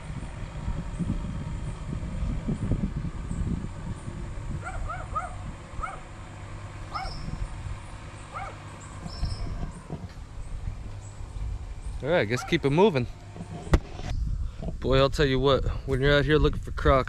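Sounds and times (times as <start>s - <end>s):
low rumbling noise: 0.0s - 17.0s
animal yipping: 4.6s - 6.1s, 6.9s - 7.4s, 8.3s - 9.8s.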